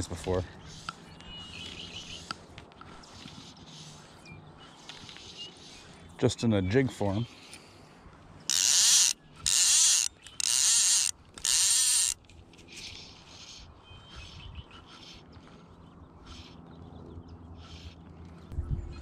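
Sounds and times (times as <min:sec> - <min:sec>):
fly reel drag buzzing: 0:08.5 - 0:13.6.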